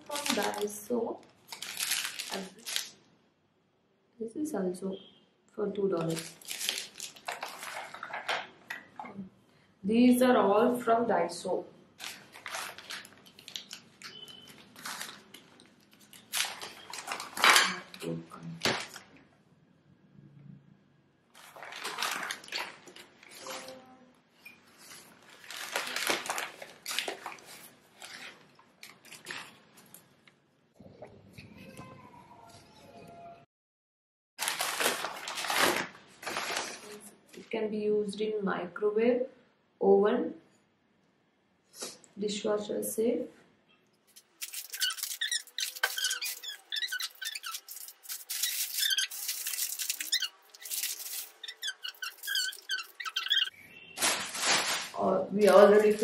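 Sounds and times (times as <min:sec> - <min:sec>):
paper wrapping rustling: 0:00.0 - 0:00.8, 0:01.4 - 0:03.0, 0:06.0 - 0:08.6, 0:12.0 - 0:19.1, 0:21.3 - 0:23.8, 0:24.6 - 0:30.1, 0:34.4 - 0:37.4, 0:44.1 - 0:56.0.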